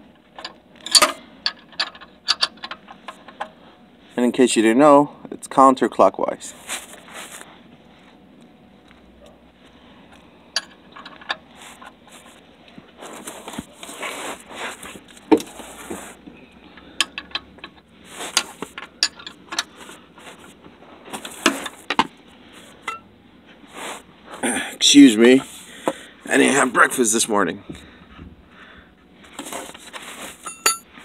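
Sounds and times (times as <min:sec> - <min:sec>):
handling rustle and scraping: 0:00.0 - 0:04.7, 0:06.4 - 0:31.0
wrench clinking on drain plug: 0:30.4 - 0:30.9.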